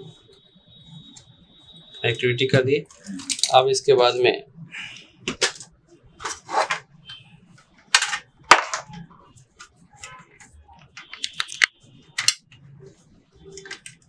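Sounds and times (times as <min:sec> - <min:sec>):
plastic printer parts clicking: 0:10.9 - 0:12.4, 0:13.6 - 0:14.0.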